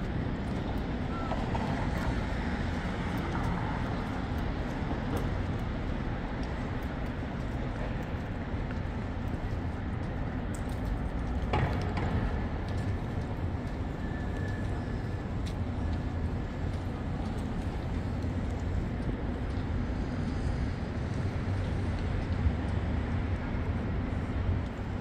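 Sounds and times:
traffic rumble: 0.0s - 25.0s.

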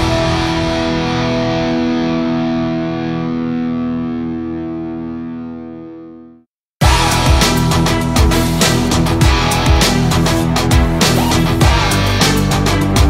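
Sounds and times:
distorted electric guitar chord: 0.0s - 13.0s.

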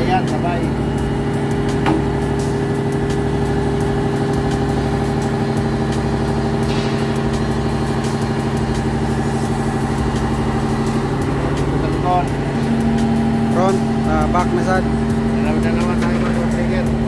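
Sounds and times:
diesel engine idling: 0.0s - 17.0s.

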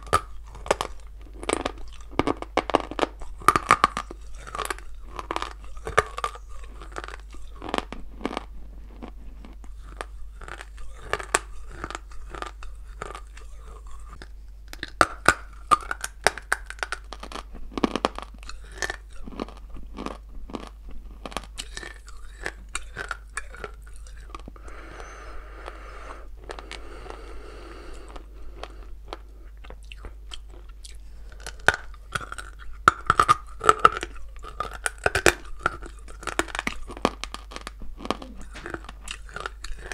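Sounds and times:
crunching and chewing clay: 0.0s - 39.9s
soft hissing noise: 21.8s - 34.4s.

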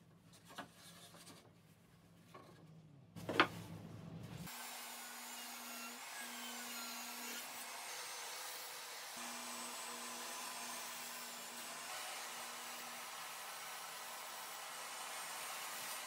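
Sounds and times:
table saw running: 4.5s - 16.0s.

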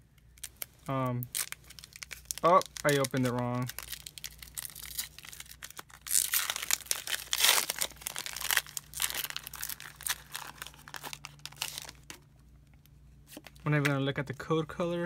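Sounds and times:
foil wrapper crinkling and tearing: 0.3s - 12.2s.

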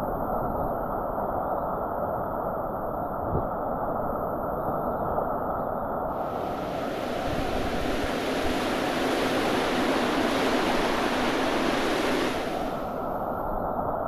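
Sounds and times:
whitewater rushing: 6.1s - 13.2s.

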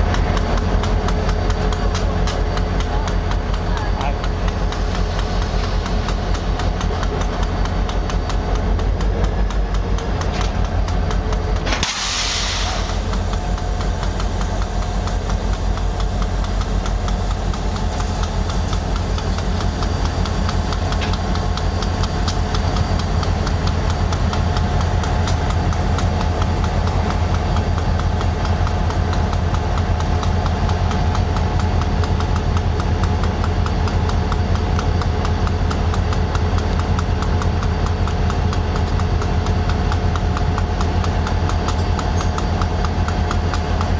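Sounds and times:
diesel locomotive engine idling: 0.0s - 43.9s
burst of hiss: 11.7s - 22.0s.

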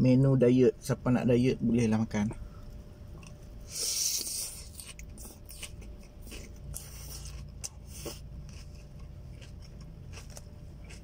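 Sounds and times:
chewing salad crunches: 3.1s - 11.0s.

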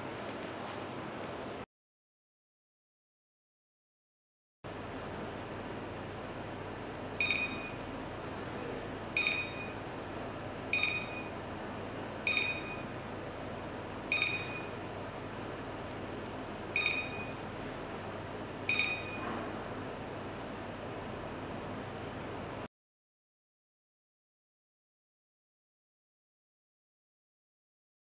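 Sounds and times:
short high electronic beeps: 7.2s - 7.9s, 9.2s - 9.9s, 10.7s - 11.5s, 12.3s - 13.0s, 14.1s - 14.8s, 16.8s - 17.6s, 18.7s - 19.3s.

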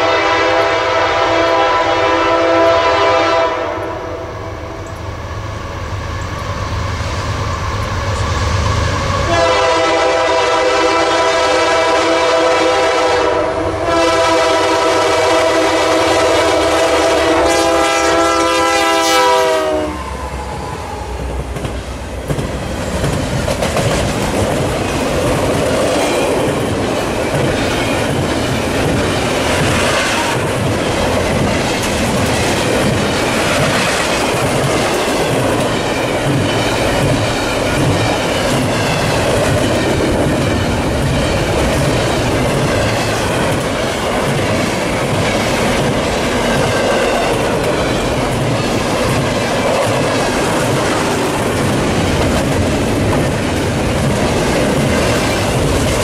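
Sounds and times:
locomotive horn chord: 0.0s - 4.4s, 9.2s - 20.1s
train wheels clattering: 21.2s - 56.0s.

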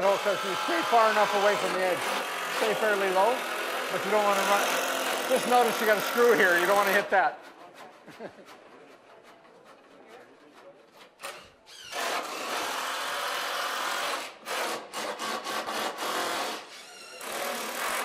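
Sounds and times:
cordless drill driving screws: 0.0s - 7.1s, 11.2s - 18.0s.

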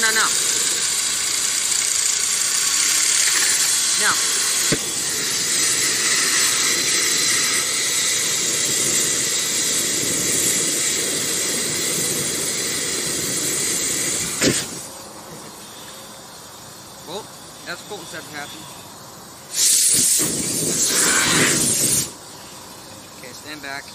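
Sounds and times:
fuel igniting pop: 4.6s - 5.3s, 14.2s - 14.9s
aerosol spray hissing: 19.5s - 22.2s.

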